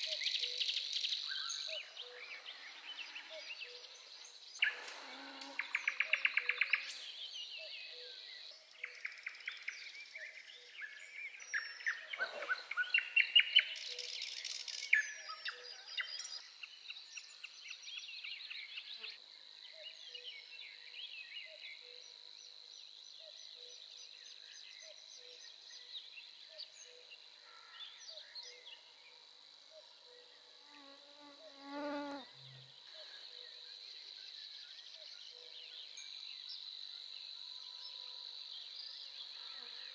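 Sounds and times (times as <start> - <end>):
high-pitched insect hum: 0.0 - 7.2, 18.4 - 39.9
songbirds singing trills: 0.0 - 39.9.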